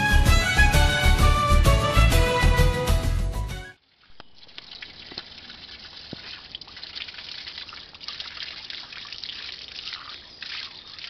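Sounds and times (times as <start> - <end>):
tap water splashing over hands: 4.5 - 11.0.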